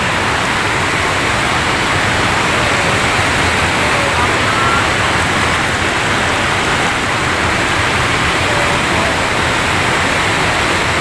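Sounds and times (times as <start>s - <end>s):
water rushing over weir: 0.0s - 11.0s.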